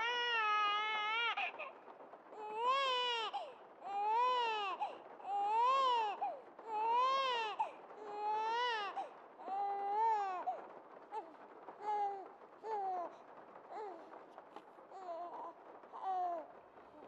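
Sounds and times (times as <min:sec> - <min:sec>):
infant crying: 0:00.0 - 0:01.7, 0:02.4 - 0:10.6.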